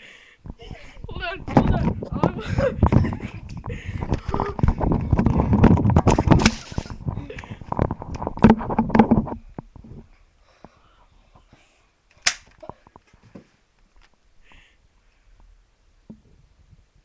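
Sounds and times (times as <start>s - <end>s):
camera rustling and knocking: 1.2s - 10.1s.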